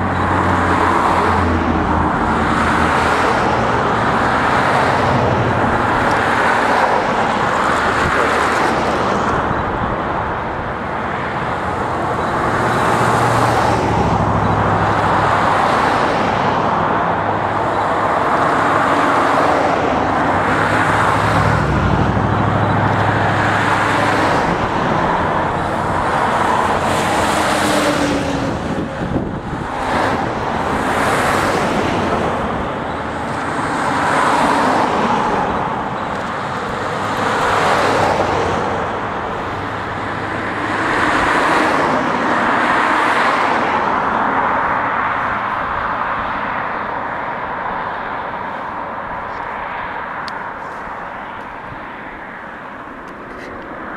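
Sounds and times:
cars passing: 0:00.0 - 0:53.9.

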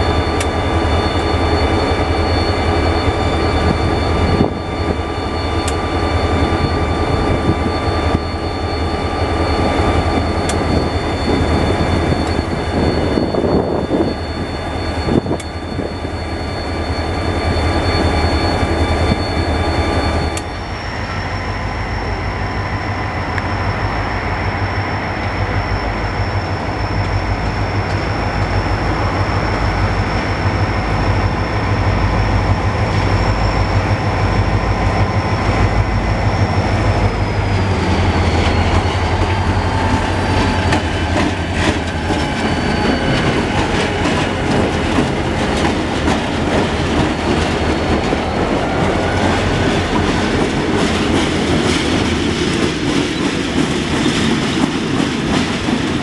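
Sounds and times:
high whine: 0:00.0 - 0:56.0
locomotive engine drone: 0:00.0 - 0:56.0.

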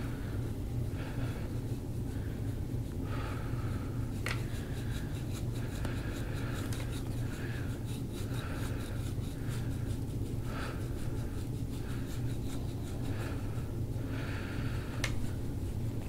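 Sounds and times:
steady low hum: 0:00.0 - 0:16.0
fingers rubbing skin: 0:04.1 - 0:14.2.

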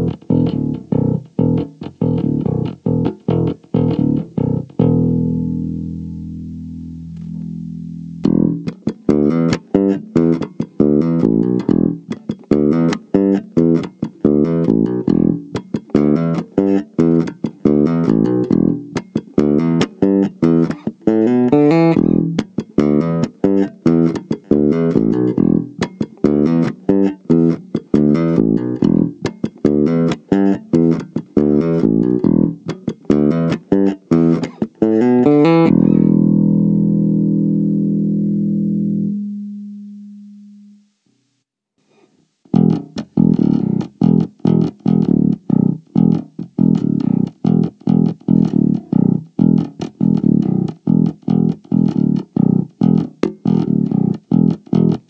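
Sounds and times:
electric bass plucked notes: 0:00.0 - 0:41.0, 0:42.5 - 0:55.0.

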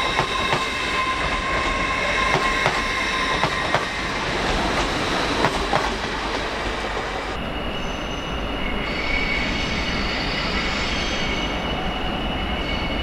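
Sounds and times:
high wheel squeal: 0:00.0 - 0:04.2
train wheels rumbling on rails: 0:00.0 - 0:07.4.

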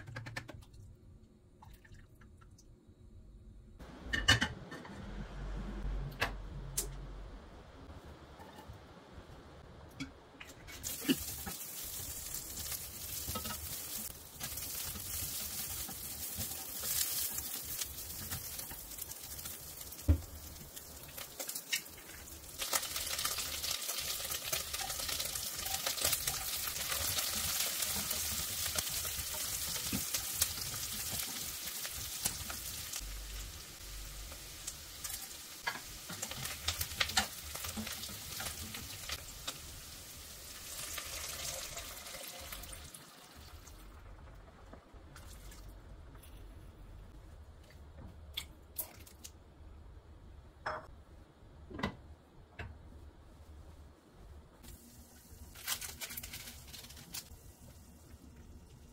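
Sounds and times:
meat sizzling in hot oil: 0:10.8 - 0:44.1.

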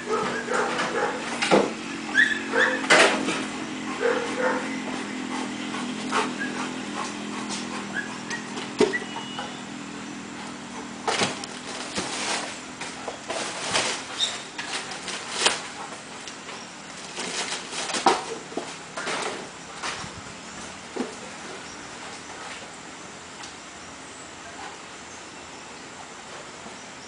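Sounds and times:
dog knocking over tyres and junk: 0:00.0 - 0:05.0, 0:05.9 - 0:09.6, 0:10.7 - 0:20.1.

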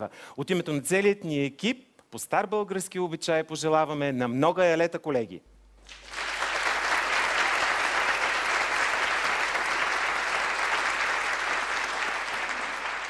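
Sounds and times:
crowd applauding: 0:05.8 - 0:13.0.

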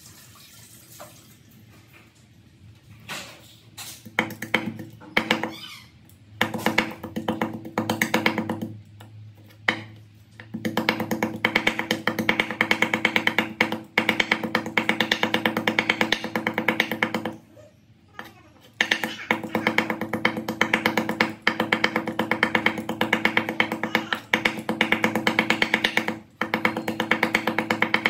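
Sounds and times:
cleaver chopping on wooden board: 0:09.7 - 0:17.4, 0:18.8 - 0:28.0.

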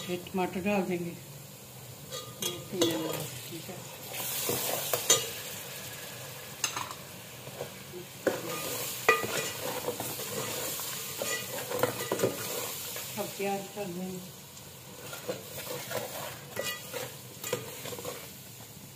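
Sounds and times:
food sizzling in a pot: 0:00.0 - 0:18.9
metal ladle scraping a pot: 0:08.4 - 0:12.7, 0:15.0 - 0:18.3.

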